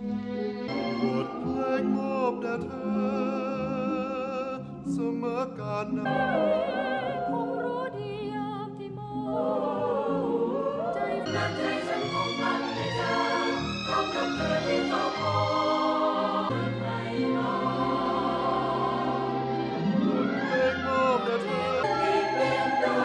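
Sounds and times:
operatic singing voice: 0.7 - 19.5, 20.2 - 23.0.

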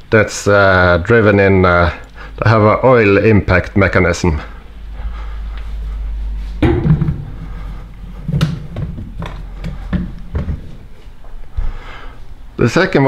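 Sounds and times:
low rumble: 4.7 - 11.0.

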